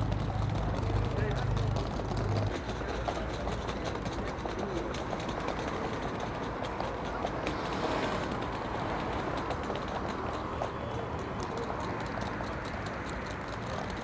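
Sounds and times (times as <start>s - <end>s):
scattered clicks and taps: 0.0s - 14.0s
traffic and people hum: 0.0s - 14.0s.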